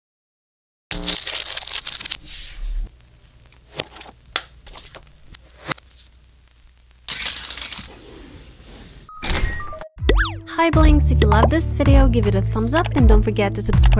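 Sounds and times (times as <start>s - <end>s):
paper pages rustling: 1.0s - 2.8s, 3.6s - 6.1s, 7.1s - 8.1s.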